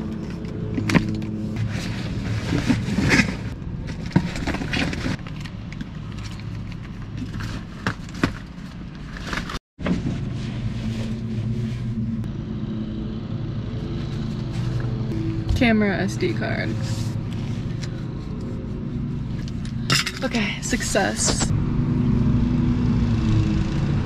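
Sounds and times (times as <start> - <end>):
road noise: 0.0 - 24.0
car engine hum: 10.4 - 24.0.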